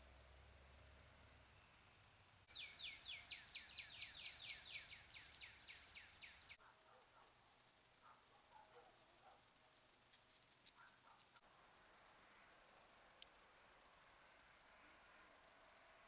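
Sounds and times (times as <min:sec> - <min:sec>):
songbird whistling: 0:02.5 - 0:06.6.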